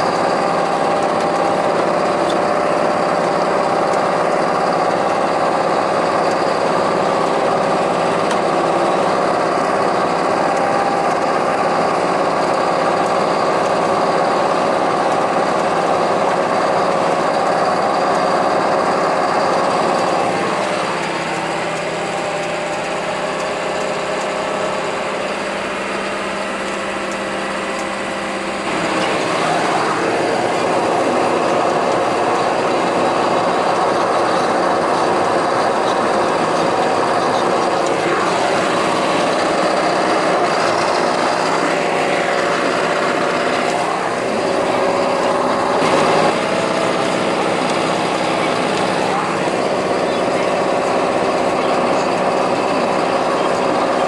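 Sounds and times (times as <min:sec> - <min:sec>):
muck spreader machinery: 0:00.0 - 0:54.0
tractor engine under load: 0:00.0 - 0:54.0.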